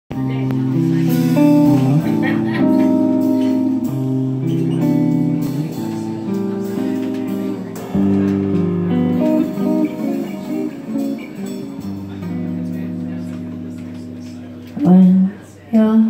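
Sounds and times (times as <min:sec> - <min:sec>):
upright double bass: 0:00.1 - 0:09.8
jazz electric guitar: 0:00.1 - 0:16.0.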